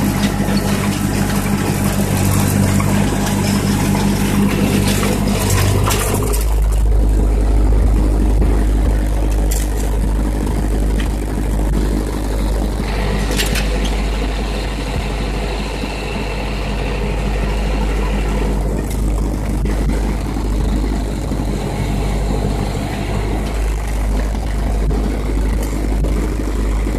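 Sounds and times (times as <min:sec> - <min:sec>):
rake pulled through gravel: 0:00.0 - 0:06.8, 0:12.9 - 0:16.2
metallic rattles: 0:00.0 - 0:15.6
tractor engine running: 0:00.0 - 0:26.9.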